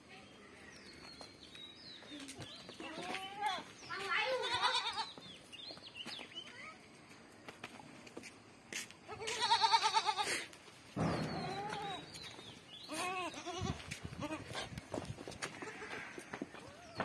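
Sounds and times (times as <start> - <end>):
goat kids bleating: 2.8 - 5.2, 9.1 - 10.6, 11.2 - 12.1, 12.8 - 14.8, 15.4 - 17.0.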